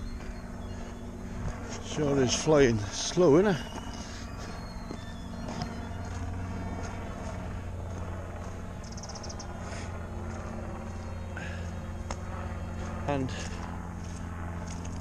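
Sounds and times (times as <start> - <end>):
helicopter low hum: 0.0 - 15.0
high chirps: 3.5 - 6.2.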